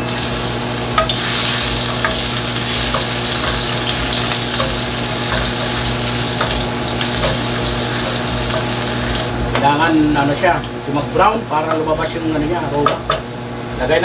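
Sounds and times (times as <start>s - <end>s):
ginger sizzling in hot oil: 0.0s - 10.6s
spatula tapping and scraping wok: 0.9s - 9.3s.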